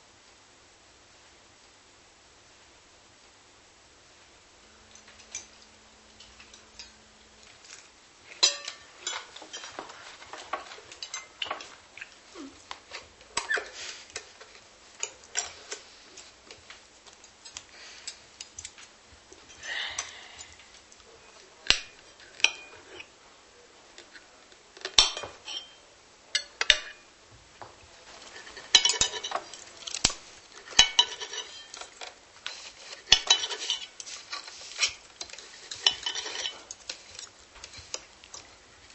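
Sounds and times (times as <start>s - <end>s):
dishes and cutlery clinking: 4.8s - 12.2s, 12.9s - 16.4s, 17.1s - 23.1s, 24.8s - 25.8s, 26.4s - 27.1s, 28.0s - 38.9s.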